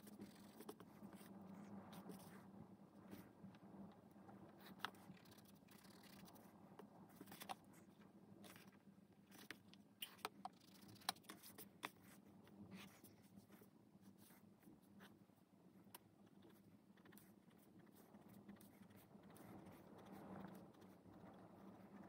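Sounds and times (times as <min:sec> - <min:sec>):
pencil scratching on paper: 0:10.8 - 0:15.2, 0:16.2 - 0:22.0.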